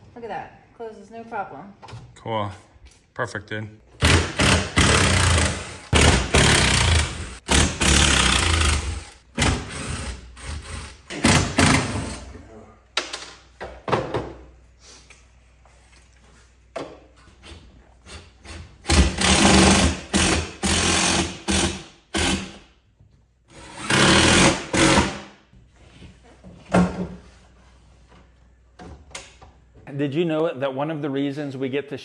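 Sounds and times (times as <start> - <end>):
cordless drill driving screws: 23.5 - 25.1.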